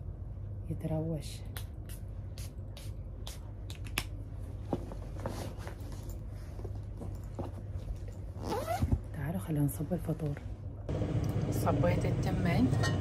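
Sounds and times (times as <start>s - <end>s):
low hum: 9.7s - 13.0s.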